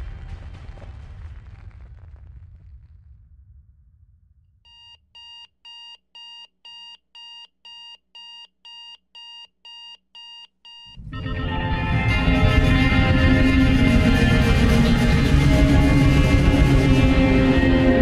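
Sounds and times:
loud music: 0:11.0 - 0:18.0.

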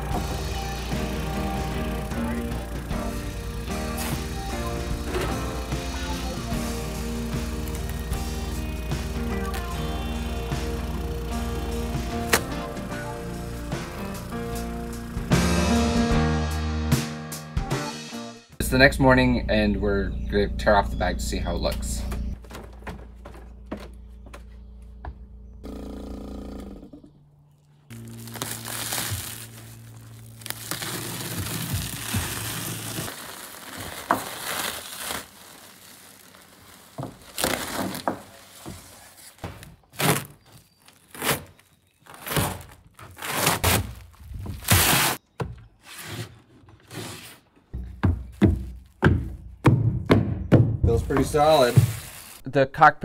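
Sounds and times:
background music: 0:00.0 - 0:18.8
plastic film crinkling: 0:03.4 - 0:10.4, 0:27.9 - 0:45.2, 0:50.9 - 0:52.5
plastic film ripping: 0:03.9 - 0:10.2, 0:27.9 - 0:45.2, 0:51.1 - 0:52.5.

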